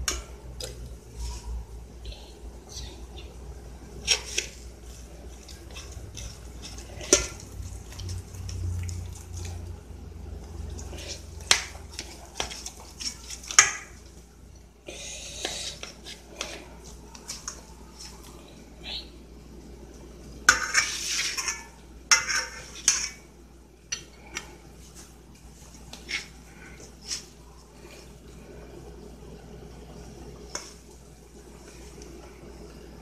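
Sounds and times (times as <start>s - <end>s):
knife and fork scraping pan: 20.5s - 23.2s.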